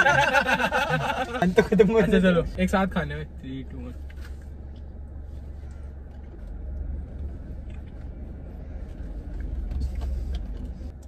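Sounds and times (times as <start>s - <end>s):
low rumble inside car: 0.0s - 11.0s
faint clicks and rustles: 3.7s - 11.0s.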